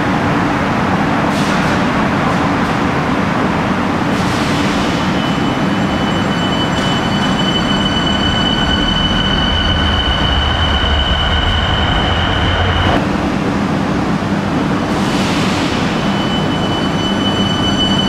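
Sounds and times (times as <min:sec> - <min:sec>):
train rumble: 0:00.0 - 0:18.0
electric train whine: 0:04.9 - 0:15.0, 0:15.7 - 0:18.0.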